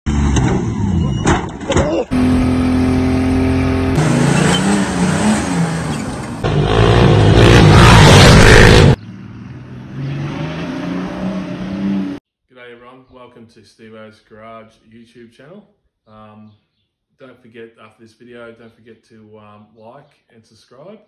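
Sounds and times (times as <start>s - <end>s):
car engines revving hard: 2.1s - 12.2s.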